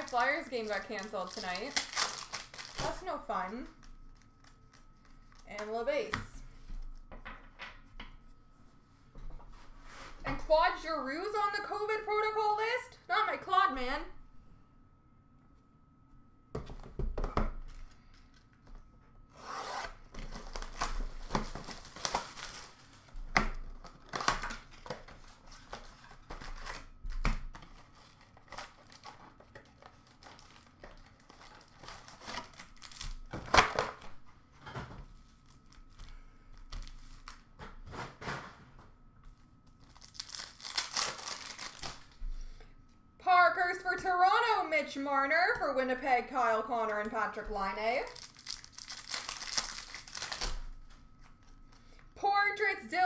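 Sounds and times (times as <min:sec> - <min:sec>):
cardboard and plastic tearing: 0:00.0 - 0:03.2, 0:19.4 - 0:34.1, 0:39.8 - 0:42.2, 0:48.0 - 0:50.7.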